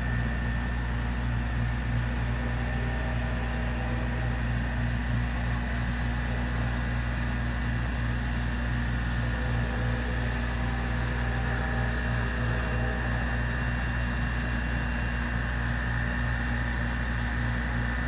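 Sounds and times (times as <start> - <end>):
low mechanical hum: 0.0 - 18.0
faint high tone: 9.0 - 14.7.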